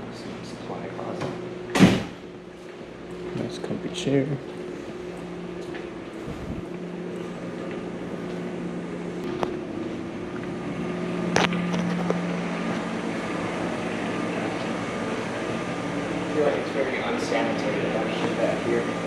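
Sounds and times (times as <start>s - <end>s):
low machinery hum: 0.0s - 19.0s.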